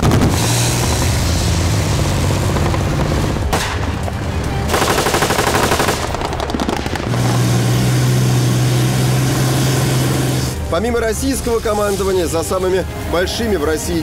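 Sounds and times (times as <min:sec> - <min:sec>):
armoured vehicle engines droning: 0:00.0 - 0:14.0
rapid automatic gunfire: 0:04.7 - 0:07.4.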